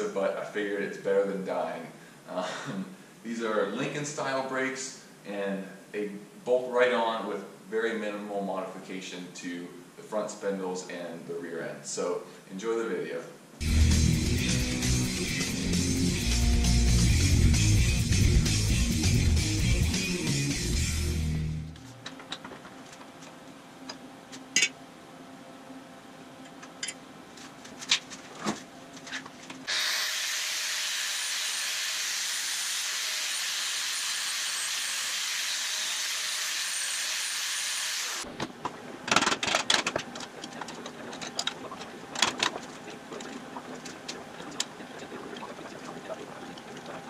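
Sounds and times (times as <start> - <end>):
metal tools clanking: 24.5 - 24.8, 26.8 - 27.0
angle grinder grinding steel: 29.7 - 38.3.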